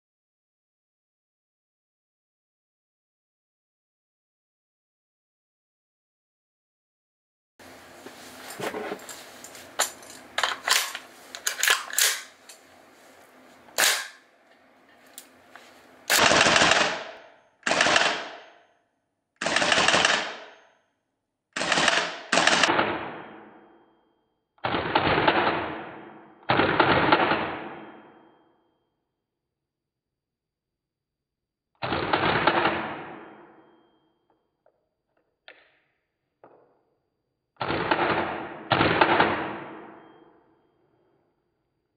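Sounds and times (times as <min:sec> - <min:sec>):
slow motion gunshots: 0:16.1 - 0:18.6, 0:19.4 - 0:20.6, 0:21.6 - 0:24.0, 0:24.6 - 0:28.5, 0:31.8 - 0:33.9, 0:37.6 - 0:40.4.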